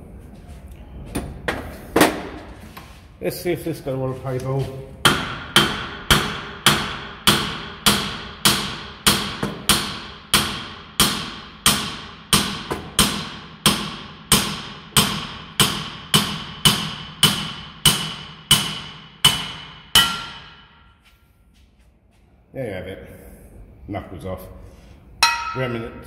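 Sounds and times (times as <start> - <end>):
hammer striking metal: 5.0 - 21.0, 25.2 - 26.0.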